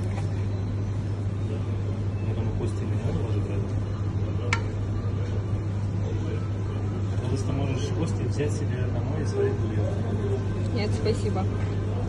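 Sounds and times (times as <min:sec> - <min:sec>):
kitchen machinery hum: 0:00.0 - 0:12.0.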